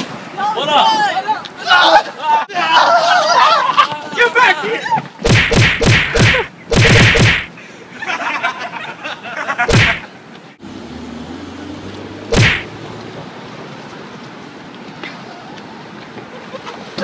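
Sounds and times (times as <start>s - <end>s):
street traffic: 0.0s - 17.0s
loud sharp bursts: 5.2s - 7.5s, 9.7s - 10.0s, 12.3s - 12.7s.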